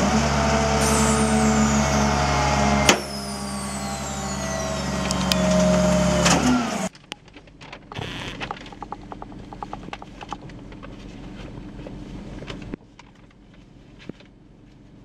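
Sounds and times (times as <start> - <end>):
garbage truck hydraulic packer: 0.0 - 6.9.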